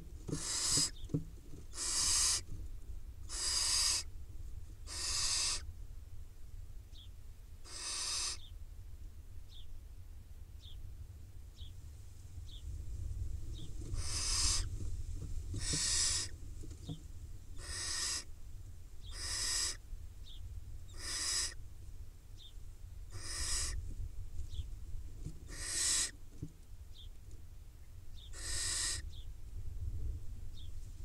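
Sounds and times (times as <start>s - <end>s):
owl nestlings hissing begging calls: 0.0s - 2.5s, 3.3s - 4.1s, 4.8s - 5.7s, 7.6s - 8.5s, 13.5s - 14.8s, 15.5s - 16.4s, 17.6s - 18.3s, 19.0s - 19.8s, 20.9s - 21.6s, 23.1s - 23.8s, 25.4s - 26.2s, 28.2s - 29.2s.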